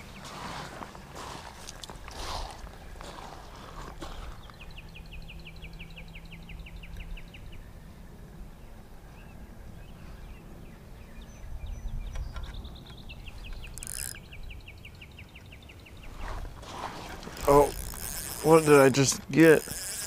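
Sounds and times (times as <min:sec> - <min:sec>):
songbird trilling: 0:11.0 - 0:16.2.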